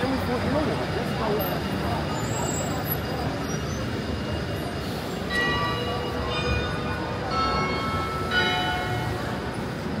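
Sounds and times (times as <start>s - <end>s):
low street rumble: 0.0s - 10.0s
bells ringing: 4.2s - 10.0s.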